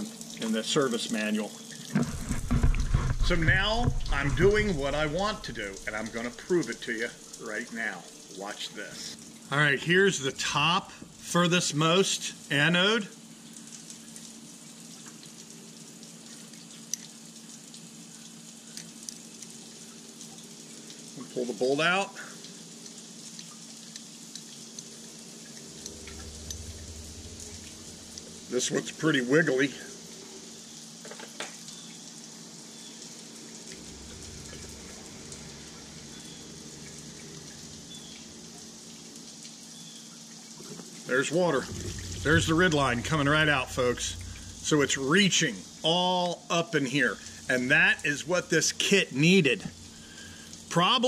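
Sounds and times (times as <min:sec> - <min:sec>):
hiss like running water: 0:00.0 - 0:51.0
liquid pattering and trickling: 0:00.0 - 0:51.0
steady low hum: 0:02.1 - 0:07.4, 0:24.6 - 0:30.6, 0:33.3 - 0:39.2, 0:41.3 - 0:46.2, 0:46.9 - 0:51.0.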